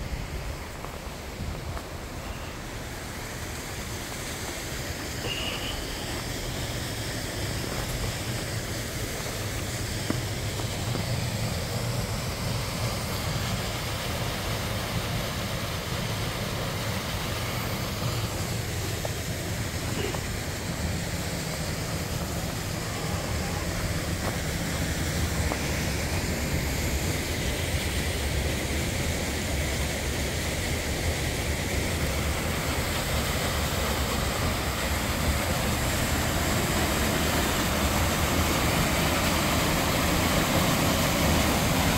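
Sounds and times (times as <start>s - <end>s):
waterfall and stream rushing: 0.0s - 41.9s.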